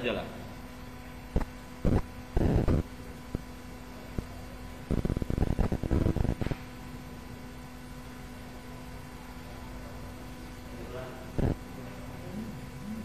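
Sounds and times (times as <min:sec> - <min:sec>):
electrical hum: 0:00.0 - 0:13.0
crackling noise: 0:01.2 - 0:06.9, 0:11.2 - 0:13.0.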